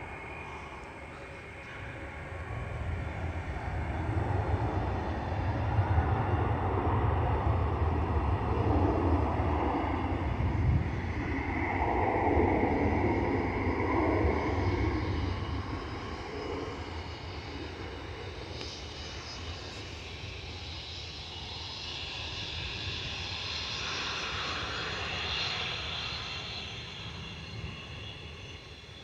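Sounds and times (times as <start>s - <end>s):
jet engine whine: 0.0s - 29.0s
jet engines rumbling: 0.0s - 29.0s.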